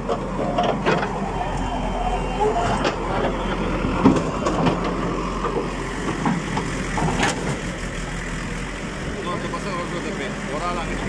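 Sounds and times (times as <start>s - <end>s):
knocks of digging road surface: 0.0s - 7.8s
diesel engine running: 0.0s - 11.0s.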